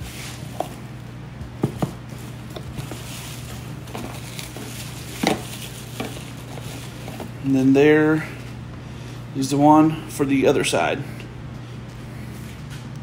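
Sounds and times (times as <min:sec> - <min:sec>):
packaging rustling: 0:01.9 - 0:07.4.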